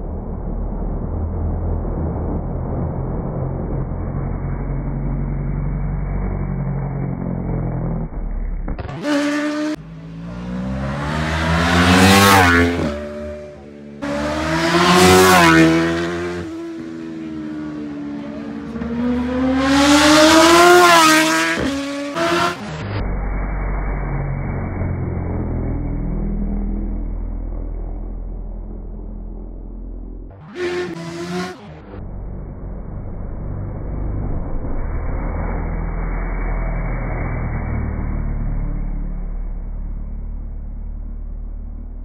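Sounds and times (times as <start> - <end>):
muffled low rumble: 0.0 - 8.9, 22.8 - 30.4, 31.8 - 42.0
racing motorcycles passing: 1.5 - 22.8, 23.4 - 40.8.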